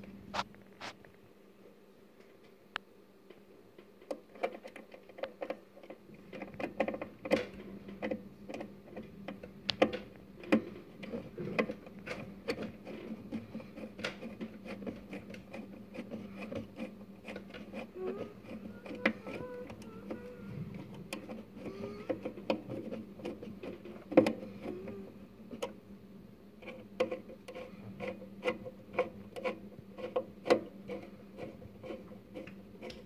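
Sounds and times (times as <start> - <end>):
low steady hum: 0.0 - 33.0
fingers tapping metal parts: 3.8 - 25.8.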